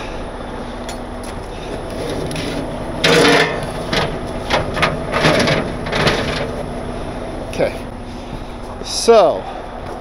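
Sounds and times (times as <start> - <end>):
steady low hum: 0.0 - 10.0
hard objects knocking and scraping: 1.8 - 6.6.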